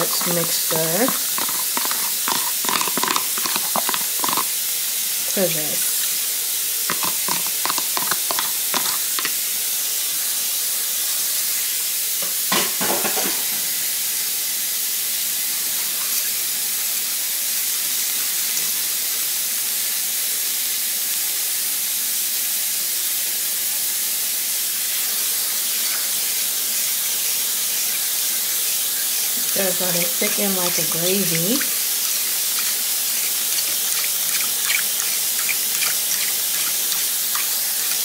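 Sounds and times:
stirring clatter against pan: 0.0s - 4.5s, 6.9s - 9.4s, 27.8s - 38.0s
sauce sizzling in a skillet: 0.0s - 38.0s.

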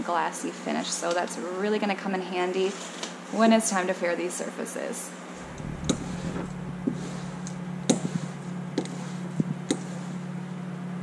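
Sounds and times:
steady low hum: 5.3s - 10.7s.

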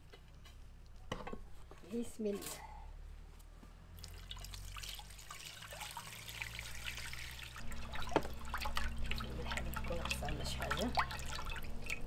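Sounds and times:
water pouring into a bowl: 4.0s - 12.0s.

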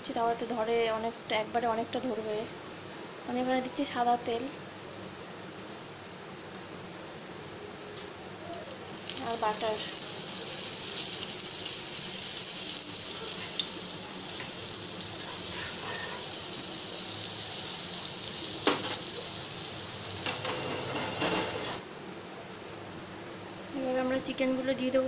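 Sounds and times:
butter sizzling in oil: 8.5s - 21.8s.

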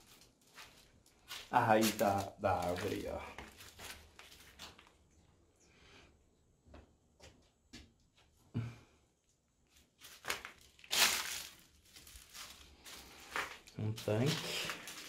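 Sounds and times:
dry leaves crunching and rustling: 0.0s - 4.9s, 10.0s - 15.0s.

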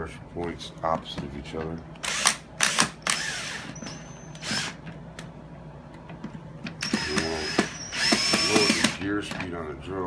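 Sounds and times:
cordless drill driving screws: 2.0s - 4.8s, 6.8s - 9.0s.

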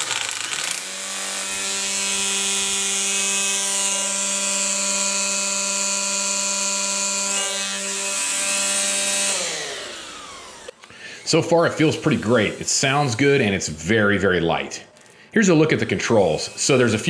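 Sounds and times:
string trimmer motor whine: 0.0s - 13.2s.

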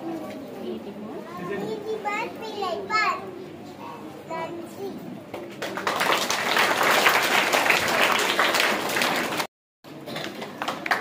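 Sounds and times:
audience clapping: 5.4s - 11.0s.

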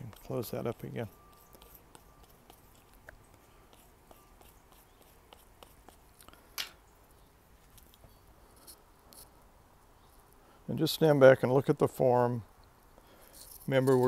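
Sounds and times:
tool working soft clay: 0.0s - 6.0s.

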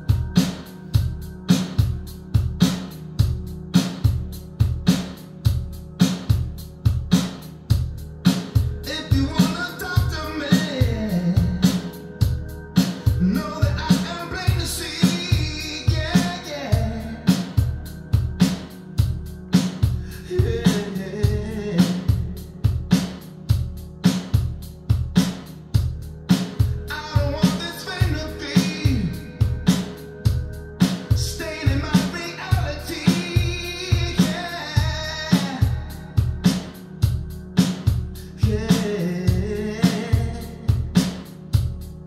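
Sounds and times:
bass line: 0.0s - 42.0s
rock song over loudspeakers: 8.1s - 25.4s, 26.1s - 41.8s.

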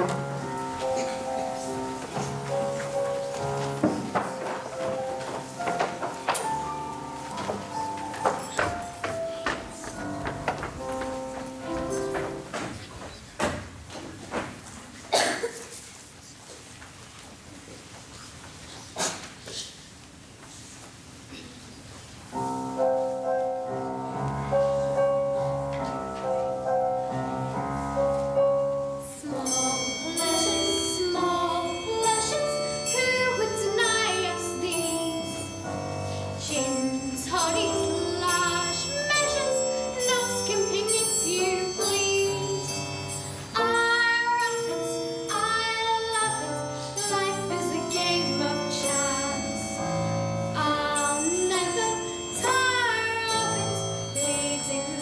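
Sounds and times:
instrumental accompaniment: 0.0s - 12.8s, 22.3s - 55.0s
girl singing: 29.0s - 35.7s, 36.4s - 55.0s.

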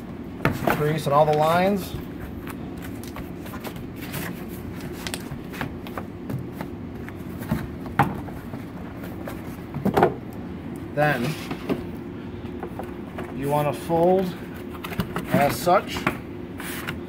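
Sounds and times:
steady low hum: 0.0s - 17.0s
cardboard crackling and folding: 0.5s - 9.8s.

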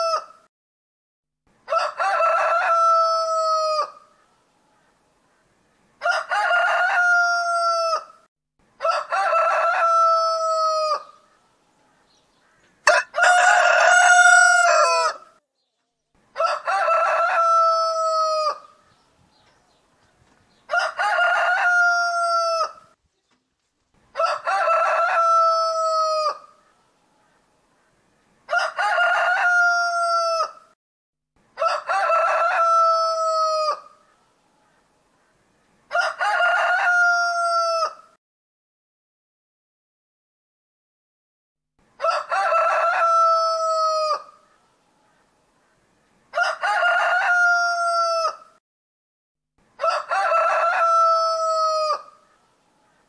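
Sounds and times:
rooster crowing: 1.7s - 4.0s, 6.0s - 8.1s, 8.8s - 11.1s, 12.8s - 15.3s, 16.4s - 18.7s, 20.7s - 22.8s, 24.2s - 26.5s, 28.5s - 30.6s, 31.6s - 33.9s, 35.9s - 38.1s, 42.0s - 44.4s, 46.3s - 48.6s, 49.8s - 52.2s.

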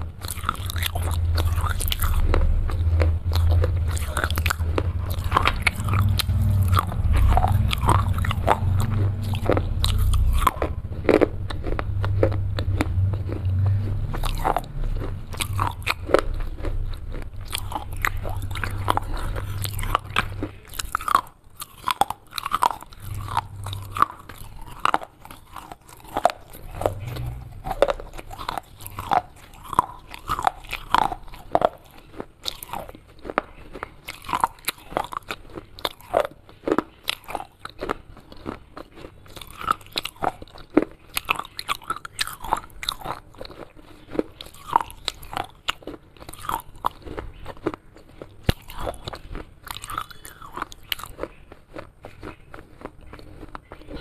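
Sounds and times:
low rumble: 0.0s - 31.6s
chewing crunches: 0.0s - 54.0s.

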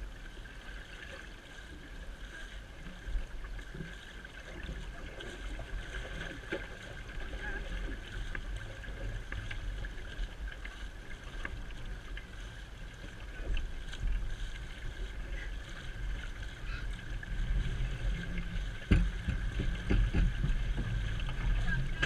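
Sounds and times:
sea water rushing along a hull: 0.0s - 22.0s.

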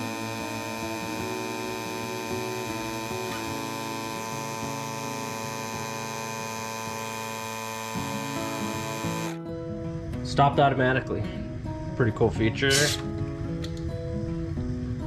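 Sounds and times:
air compressor humming: 0.0s - 10.0s, 12.7s - 13.2s.

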